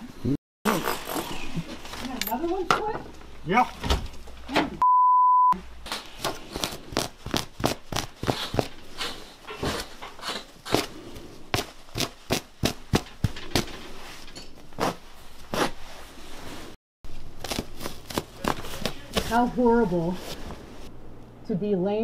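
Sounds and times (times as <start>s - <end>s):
bleep tone: 4.8s - 5.6s.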